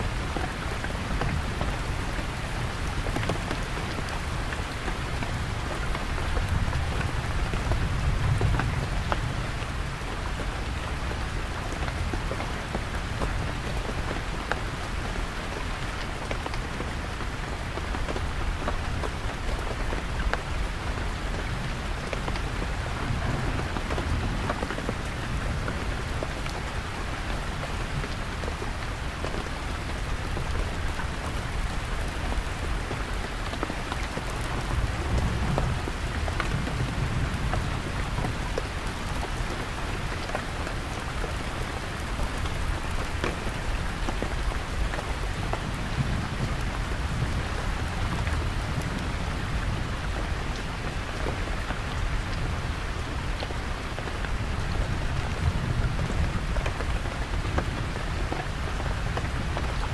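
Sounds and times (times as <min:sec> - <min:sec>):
heavy rain drumming on a tent: 0:00.0 - 0:59.9
distant thunder rumble: 0:21.9 - 0:27.2.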